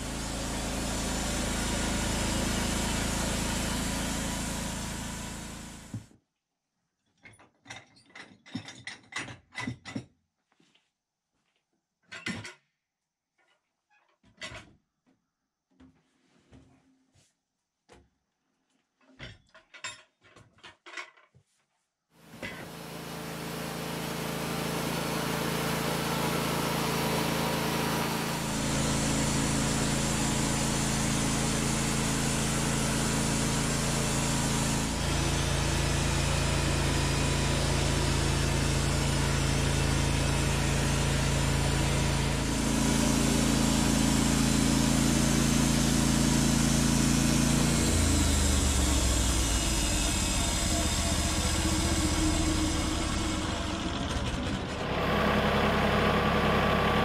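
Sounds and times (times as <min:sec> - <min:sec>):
sawmill engine running: 0:00.0 - 0:06.1, 0:22.3 - 0:57.0.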